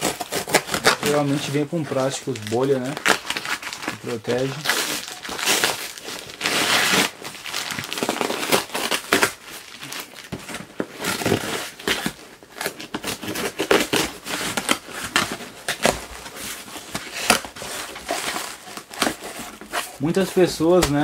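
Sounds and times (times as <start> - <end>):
cardboard rustling: 0.0 - 21.0
packing tape tearing: 0.0 - 21.0
plastic crinkling: 0.0 - 21.0.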